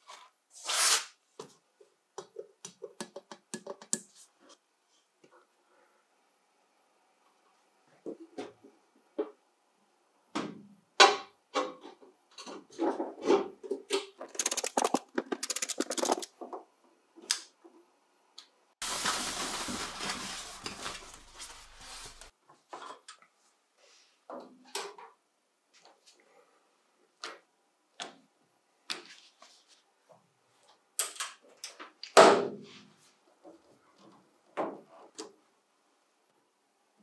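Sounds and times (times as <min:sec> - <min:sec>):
clicks taps and metallic knocks: 0:02.2 - 0:04.1.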